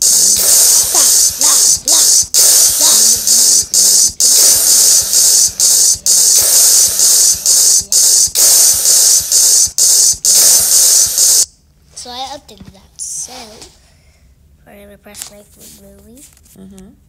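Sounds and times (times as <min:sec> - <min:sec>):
static-like hissing: 0:00.0 - 0:11.5.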